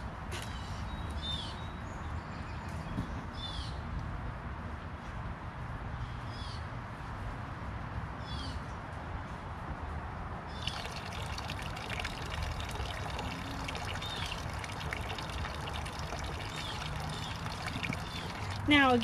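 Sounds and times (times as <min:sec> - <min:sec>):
water trickling into basin: 0:10.5 - 0:19.0.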